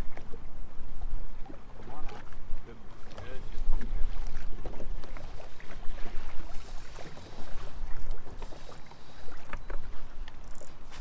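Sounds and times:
waves lapping against boat hull: 0.0 - 11.0.

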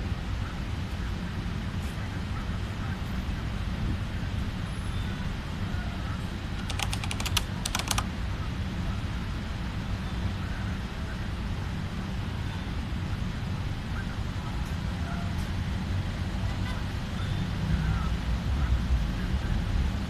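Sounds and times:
keyboard typing clicks: 6.6 - 8.1.

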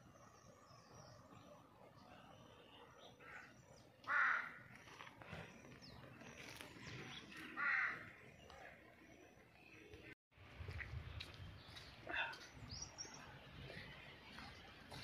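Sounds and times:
faint outdoor background noise: 0.0 - 15.0
crow cawing: 3.2 - 4.6, 7.6 - 8.0.

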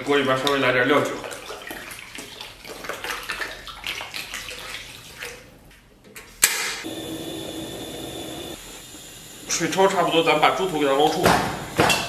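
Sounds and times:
liquid pouring and splashing: 0.0 - 5.6
gas burner flame hissing: 6.4 - 12.0.

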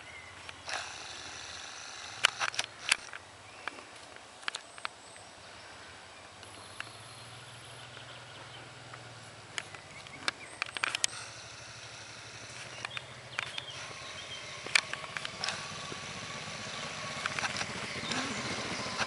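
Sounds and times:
distant motorcycle engine drone: 0.0 - 19.0
sharp clicks: 0.5 - 3.8, 9.5 - 19.0.

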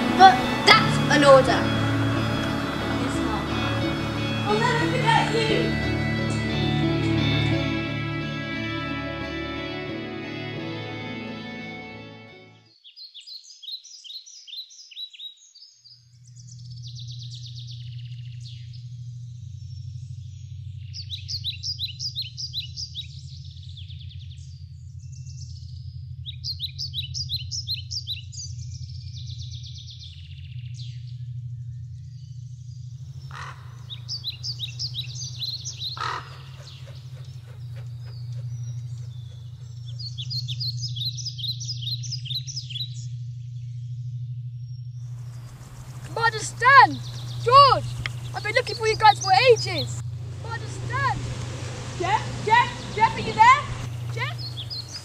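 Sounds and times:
steady low hum: 0.0 - 9.9, 16.0 - 55.0
birds chirping trilled phrases: 0.0 - 51.2, 51.8 - 55.0.

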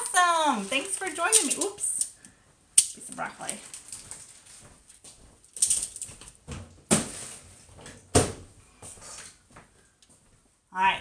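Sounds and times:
rustling: 0.0 - 8.0.

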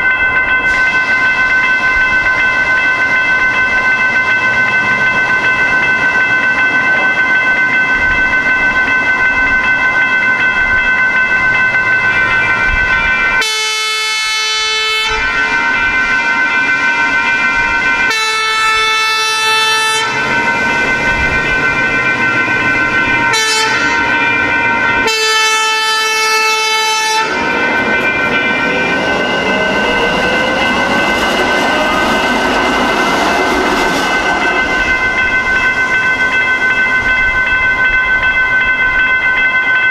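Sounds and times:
railroad crossing bells ringing: 0.0 - 39.9
rising electric train whine: 0.0 - 39.9
train horn: 13.4 - 15.3, 18.1 - 20.2, 23.3 - 24.2, 25.0 - 27.5.

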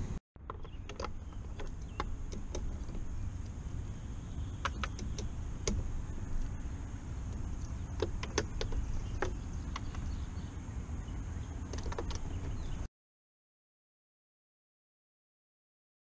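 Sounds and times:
steady low rumble: 0.0 - 12.9
hand tools clicking and tapping: 4.6 - 5.9, 7.3 - 10.1, 11.8 - 12.5.

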